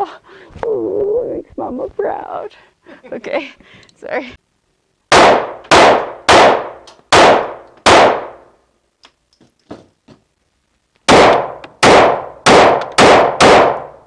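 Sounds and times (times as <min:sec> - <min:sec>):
pistol shots echoing indoors: 0:05.1 - 0:08.5, 0:11.1 - 0:14.0.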